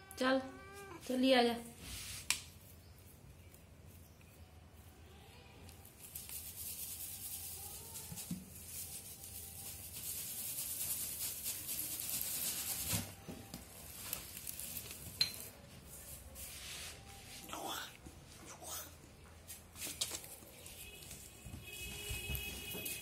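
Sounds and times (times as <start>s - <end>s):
brush rustling over plastic straps: 1.1s - 4.1s, 5.8s - 17.5s.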